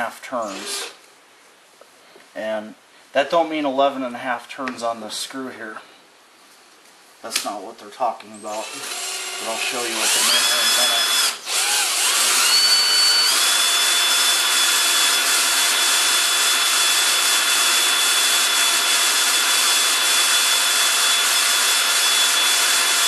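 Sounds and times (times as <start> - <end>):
cordless drill motor whine: 8.6 - 23.0.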